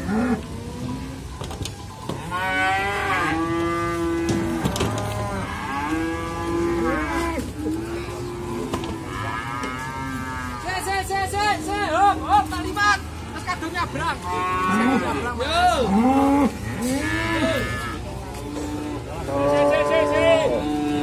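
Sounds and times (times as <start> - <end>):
cattle mooing: 0.0 - 1.2, 2.2 - 10.9, 14.2 - 21.0
higher wavering moo: 2.3 - 10.7.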